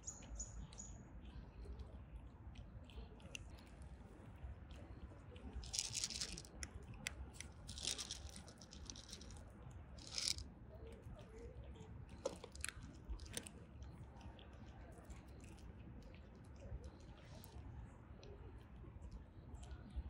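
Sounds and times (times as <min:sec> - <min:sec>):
cats crunching dry kibble: 0:02.6 - 0:18.6.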